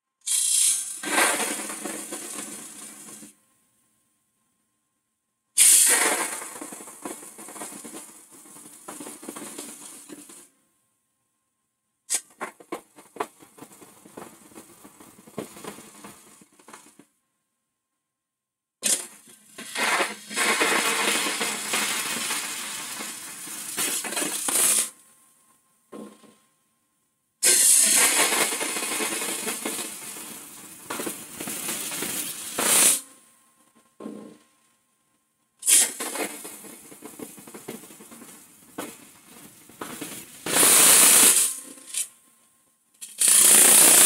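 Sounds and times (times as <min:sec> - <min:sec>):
tool cutting wood on lathe: 0:00.3 - 0:01.7, 0:27.4 - 0:28.6.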